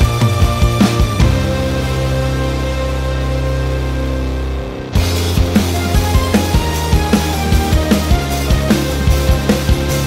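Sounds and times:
steady drum beat: 0.0s - 2.3s, 5.0s - 10.0s
sustained background music: 0.0s - 10.0s.

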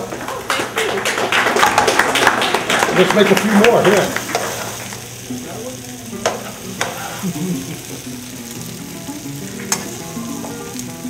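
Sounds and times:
vegetables sizzling in frying pan: 0.0s - 11.0s
metal tongs clacking on pan: 3.8s - 4.8s, 6.2s - 7.2s, 9.6s - 10.9s.

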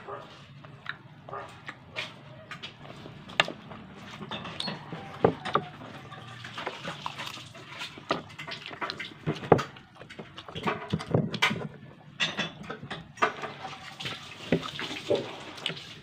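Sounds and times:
wet chewing and lip smacking: 0.2s - 12.1s.

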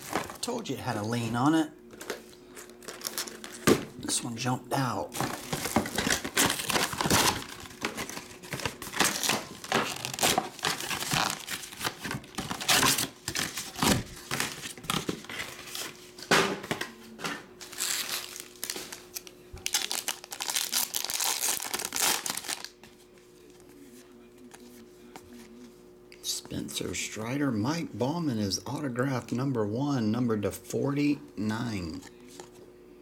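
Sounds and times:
foil packs crinkling and tearing: 2.0s - 3.7s, 5.1s - 16.0s, 17.6s - 22.8s.

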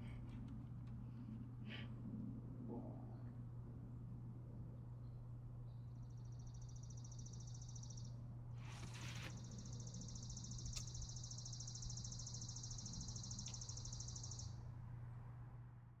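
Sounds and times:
steady low hum: 0.0s - 16.0s
pulsing insect trill: 6.2s - 8.1s, 9.4s - 14.6s.

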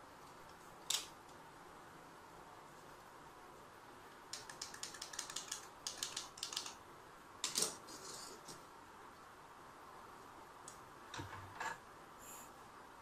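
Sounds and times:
rapid light clicking and crackling: 4.1s - 6.8s.

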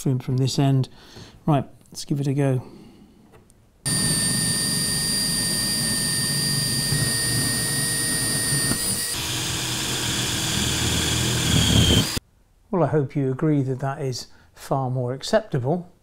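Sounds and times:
cordless drill whining: 3.9s - 12.2s.

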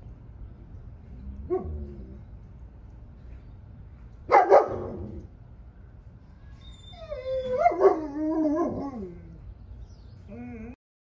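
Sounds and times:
dog barking: 4.3s - 5.0s.

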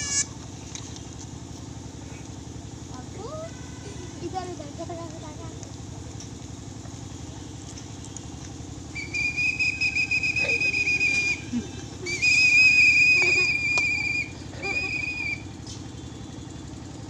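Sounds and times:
whistle blasts: 8.9s - 16.5s.

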